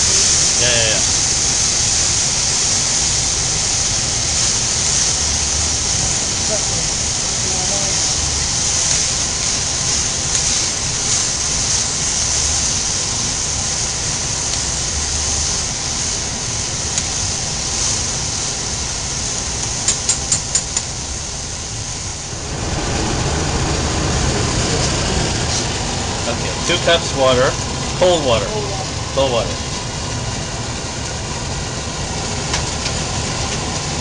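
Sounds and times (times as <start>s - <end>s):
rice sizzling in oil: 0.0s - 34.0s
quick clicks: 19.9s - 20.9s
low rushing noise: 20.9s - 34.0s.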